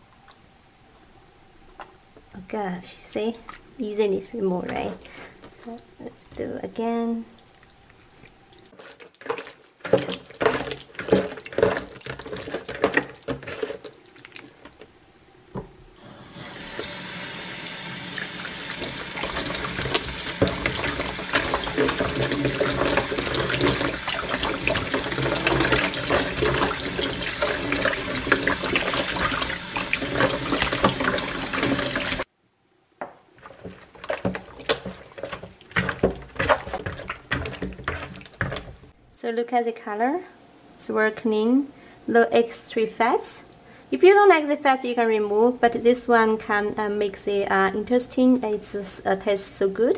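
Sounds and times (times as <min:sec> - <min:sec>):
squelching kneading of intestine: 0:07.3 - 0:14.8, 0:33.4 - 0:38.9
tap water running into bowl: 0:16.6 - 0:32.3.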